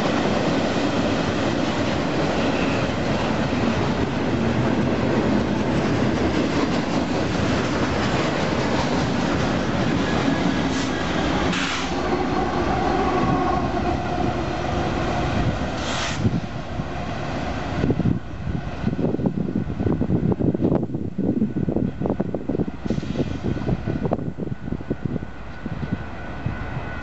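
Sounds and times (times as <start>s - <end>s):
clickety-clack over rail joints: 0.0s - 12.0s
train wheels rumbling on rails: 0.0s - 27.0s.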